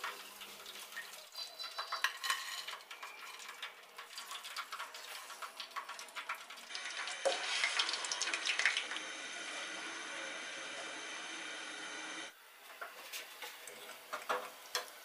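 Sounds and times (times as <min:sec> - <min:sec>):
food frying in hot oil: 0:00.0 - 0:11.7, 0:12.6 - 0:15.0
metal ladle clinking and scraping: 0:01.4 - 0:03.7.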